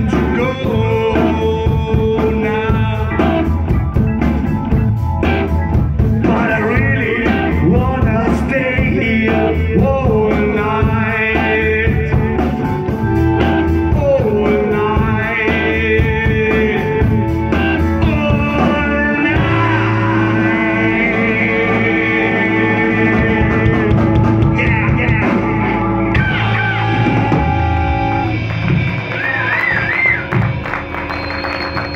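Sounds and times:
person singing: 0.0 - 3.8, 6.2 - 27.8
guitar bending notes: 0.0 - 31.9
live rock band playing: 0.0 - 31.9.

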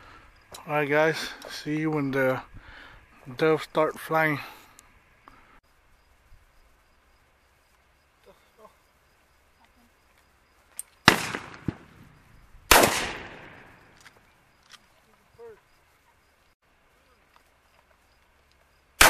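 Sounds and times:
shotgun shots: 11.0 - 12.1, 12.7 - 14.0.

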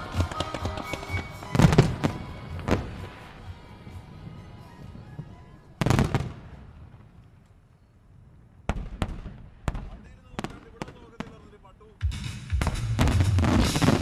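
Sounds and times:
music playing: 0.0 - 5.9, 12.0 - 14.0
firework shells bursting: 12.6 - 14.0.

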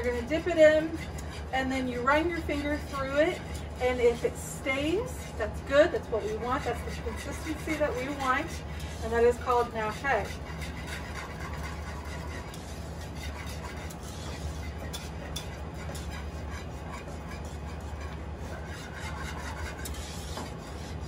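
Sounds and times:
whisk stirring and scraping a pot: 0.0 - 21.0
whisk wires clicking against pot: 5.2 - 21.0.

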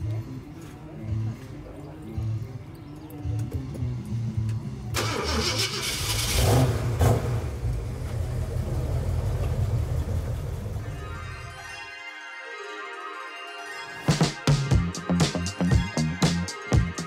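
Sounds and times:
car engine starting and revving: 4.9 - 11.0.

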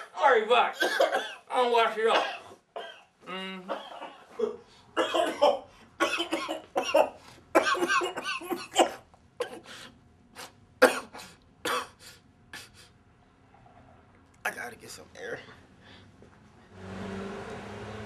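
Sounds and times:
man coughing: 0.8 - 1.5, 2.1 - 3.1, 3.7 - 9.7, 10.8 - 12.8.

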